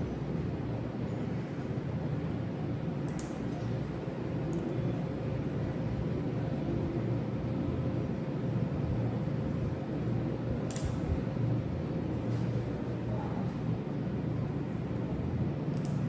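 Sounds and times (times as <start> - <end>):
low machine hum: 0.0 - 16.0.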